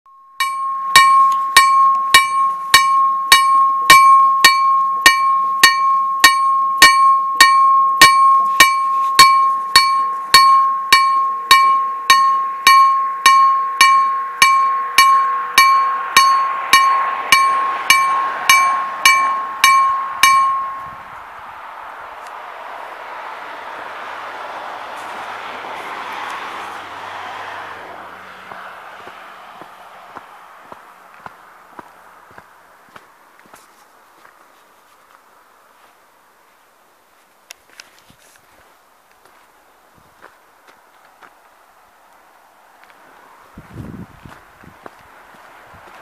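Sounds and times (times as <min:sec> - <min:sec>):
level crossing bell ringing: 0:00.1 - 0:21.0
rushing noise: 0:00.6 - 0:32.7.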